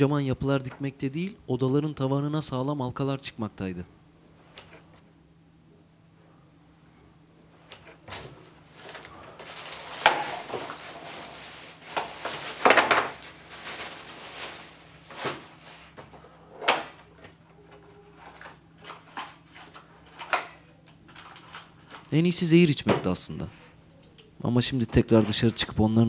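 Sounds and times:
faint low hum: 0.0s - 26.0s.

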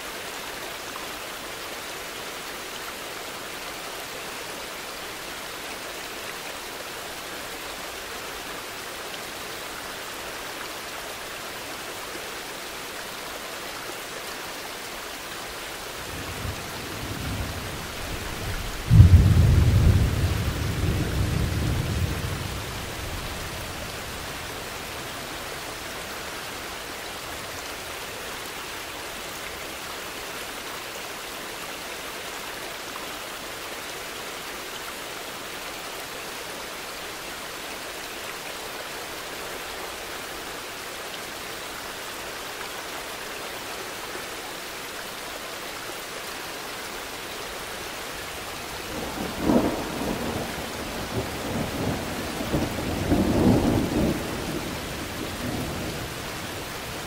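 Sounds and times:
steady rain falling: 0.0s - 57.0s
thunder rumbling: 18.6s - 22.6s.

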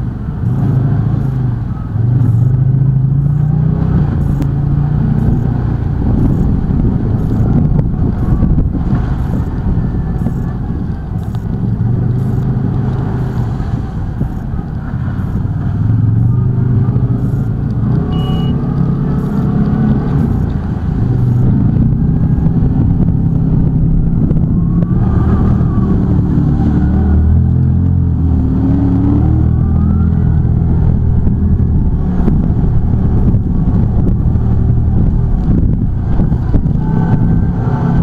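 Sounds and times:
off-road vehicle engine revving: 0.0s - 38.0s
water spraying over windscreen: 0.2s - 38.0s.

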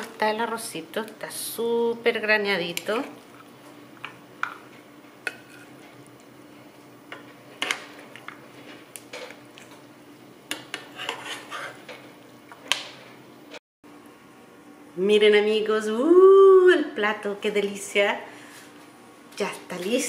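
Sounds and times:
metal utensil scraping frying pan: 10.7s - 11.9s.

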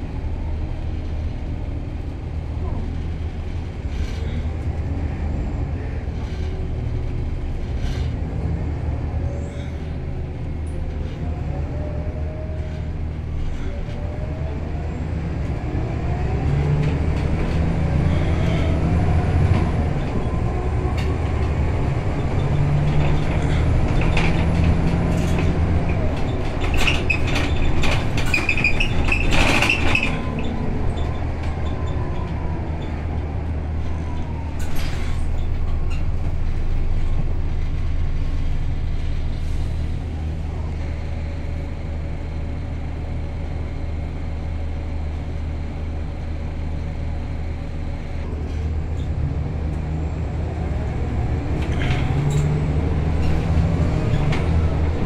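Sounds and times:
bus engine drone: 0.0s - 55.0s
rattles and knocks from bus body: 16.3s - 38.7s, 51.4s - 55.0s.

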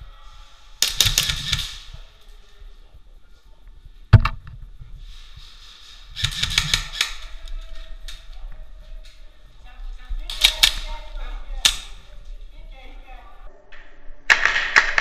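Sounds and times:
airsoft gunshots: 0.8s - 1.9s, 6.2s - 7.2s, 14.3s - 15.0s.

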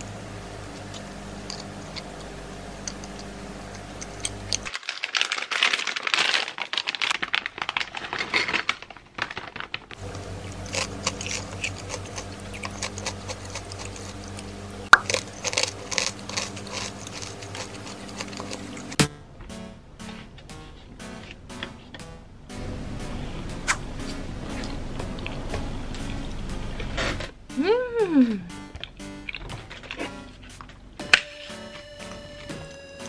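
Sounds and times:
steady low hum: 0.0s - 4.7s, 10.0s - 33.0s
potato chips crunching: 0.8s - 19.0s
plastic snack bag crinkling: 4.1s - 19.0s.

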